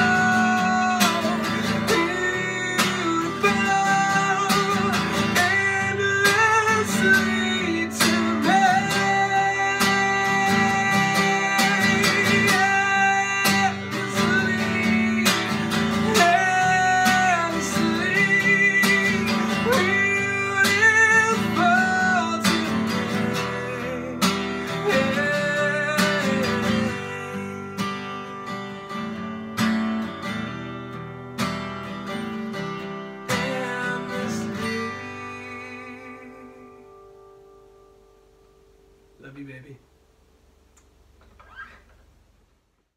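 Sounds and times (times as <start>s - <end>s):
man singing: 0.0s - 28.6s, 33.2s - 37.0s
strummed acoustic guitar: 0.0s - 39.8s.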